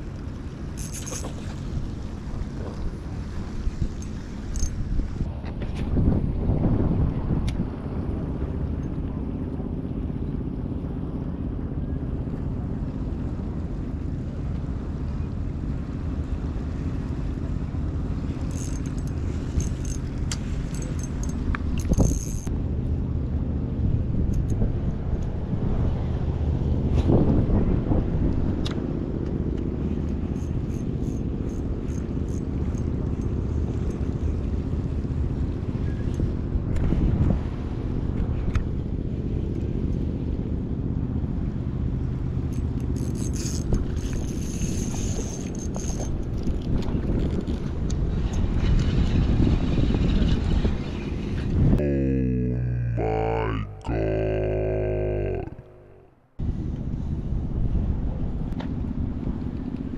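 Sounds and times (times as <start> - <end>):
fishing reel clicks: 0.7 - 1.4, 4.0 - 4.8, 18.4 - 22.5, 30.3 - 33.3, 42.5 - 46.7
wind buffeting microphone: 1.6 - 10.2, 23.8 - 41.5, 43.6 - 51.8.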